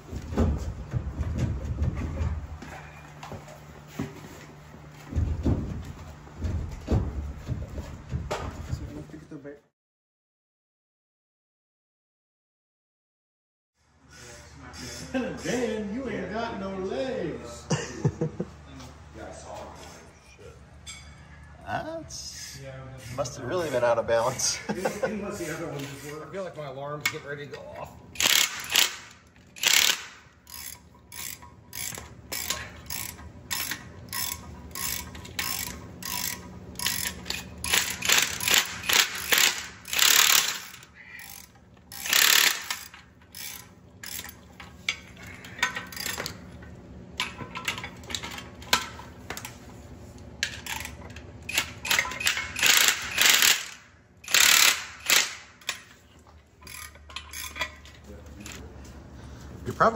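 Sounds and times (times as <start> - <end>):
impact wrench hammering: 28.2 - 46.4, 50.4 - 56.0.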